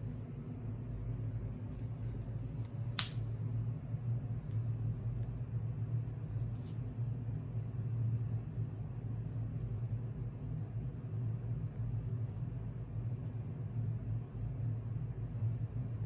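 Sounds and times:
low mechanical hum: 0:00.0 - 0:16.0
sharp click: 0:03.0 - 0:03.2.

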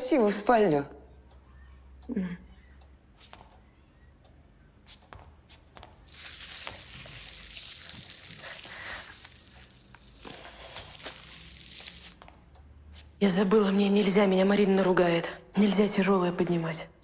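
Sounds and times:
soft footsteps: 0:04.9 - 0:13.2
plastic wrapping crinkling: 0:06.0 - 0:12.2.

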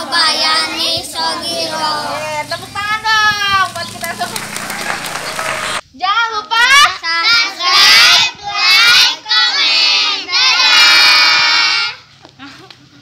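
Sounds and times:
children singing together: 0:00.0 - 0:02.4, 0:07.2 - 0:12.0.

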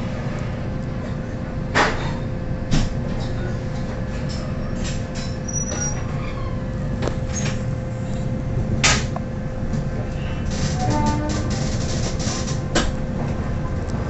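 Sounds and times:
train coach low rumble: 0:00.0 - 0:14.0.

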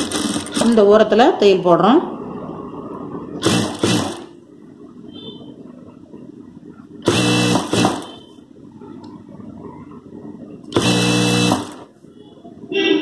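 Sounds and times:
sewing machine stitching: 0:00.0 - 0:00.8, 0:03.4 - 0:04.3, 0:07.0 - 0:08.1, 0:10.7 - 0:11.8.

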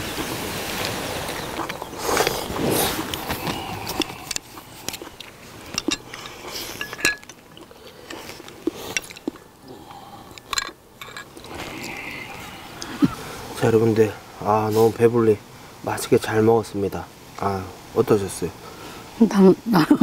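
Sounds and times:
person slurping and chewing: 0:00.8 - 0:13.2.

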